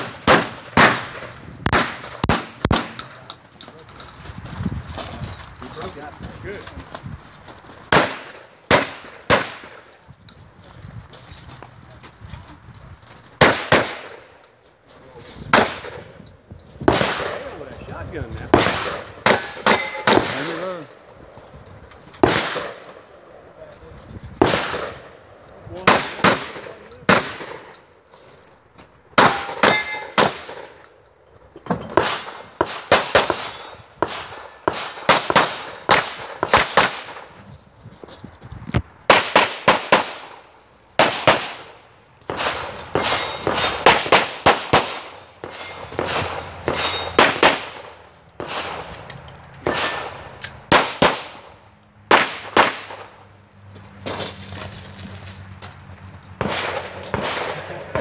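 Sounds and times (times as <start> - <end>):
pistol shots: 0.0 - 3.1, 7.9 - 9.8, 13.4 - 14.3, 15.5 - 16.1, 16.8 - 17.5, 18.5 - 20.6, 22.2 - 23.0, 24.4 - 25.2, 25.8 - 27.7, 29.2 - 30.8, 31.9 - 37.3, 39.1 - 40.4, 41.0 - 48.9, 49.6 - 51.5, 52.1 - 53.2, 56.4 - 58.0
steel targets clanging: 19.2 - 20.9, 29.2 - 30.8, 31.6 - 32.6, 33.2 - 33.9, 42.3 - 51.9.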